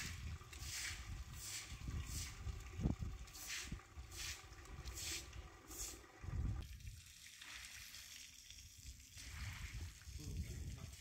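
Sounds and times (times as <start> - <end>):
broom swishing on wet tiles: 0.0 - 2.4, 3.3 - 6.0
hose water hissing and splashing: 0.0 - 11.0.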